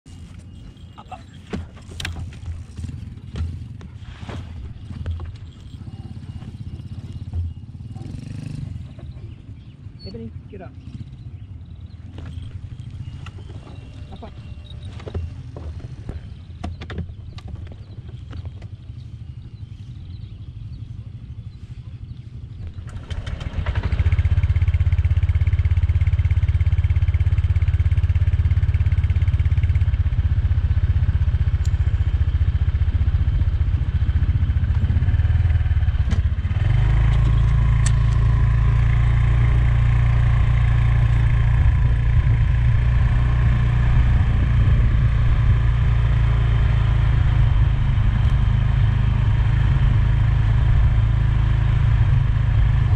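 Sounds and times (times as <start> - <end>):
motor scooter engine running: 0.1 - 52.9
deep wind rumble on microphone: 10.8 - 52.9.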